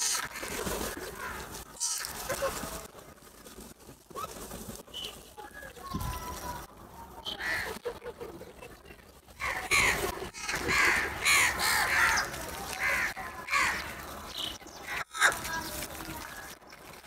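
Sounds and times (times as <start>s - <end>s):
crows cawing: 1.2s - 2.1s, 7.3s - 7.8s, 9.4s - 14.0s, 14.9s - 15.5s.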